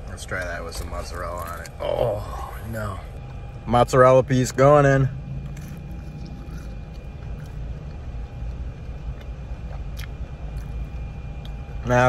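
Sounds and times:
car idling hum: 0.0 - 12.0
chewing clicks: 5.4 - 11.7.

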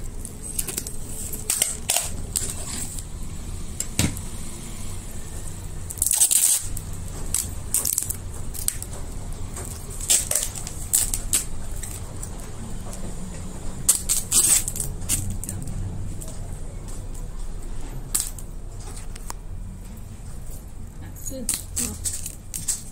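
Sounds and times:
plastic film and cardboard crinkling: 0.0 - 3.2, 5.9 - 13.0, 13.8 - 19.3, 21.3 - 22.9.

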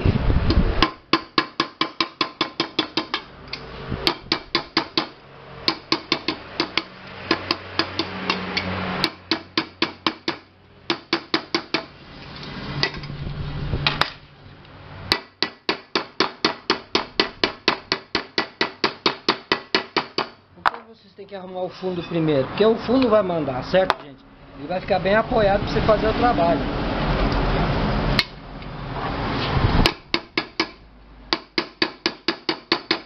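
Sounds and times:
small hammer tapping metal: 0.8 - 11.9, 29.8 - 33.0.

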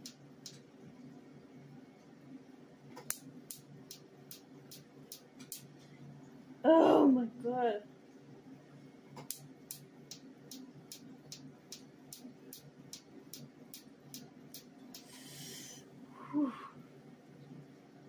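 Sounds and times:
laser sharp snaps: 3.0 - 5.7, 9.2 - 15.1.

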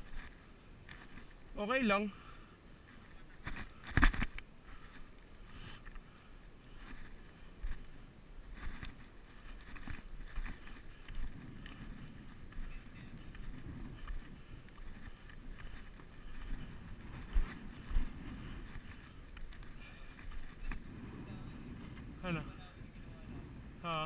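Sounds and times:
wind noise on microphone: 2.8 - 24.0.

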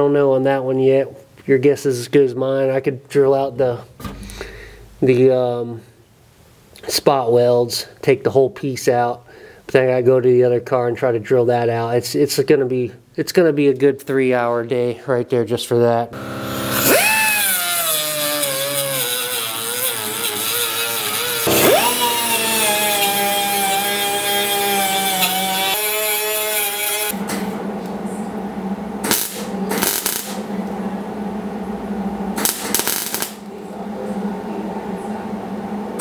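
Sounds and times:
cut-off tool whining: 16.2 - 27.5
welder crackling and popping: 29.0 - 30.4, 32.4 - 33.5.

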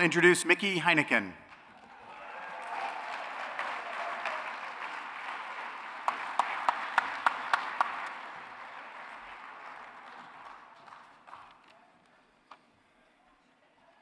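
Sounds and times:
loud claps from one person: 1.5 - 11.7
audience applauding: 1.5 - 12.3.

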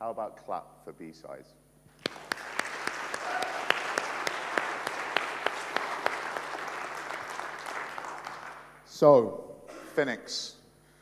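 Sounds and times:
single sharp claps: 2.0 - 8.7
audience applauding: 2.0 - 8.8.

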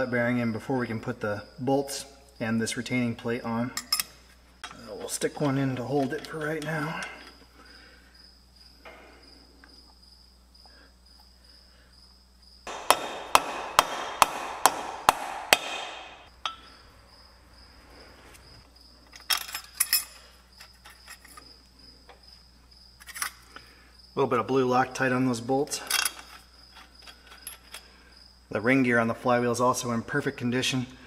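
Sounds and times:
mallet striking metal flywheel: 12.7 - 16.3.

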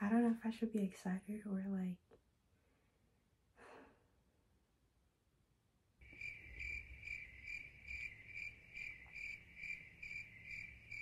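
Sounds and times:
crickets chirping: 6.0 - 11.0.

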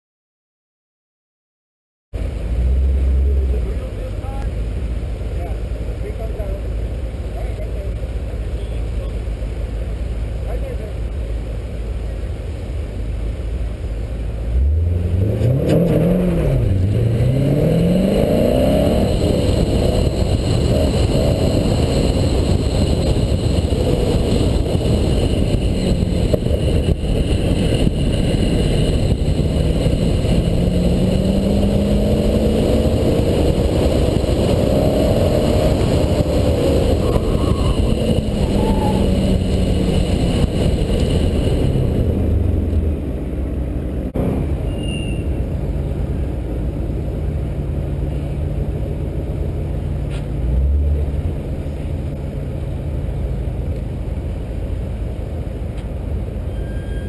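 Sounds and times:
sports car engine revving: 13.6 - 44.6.

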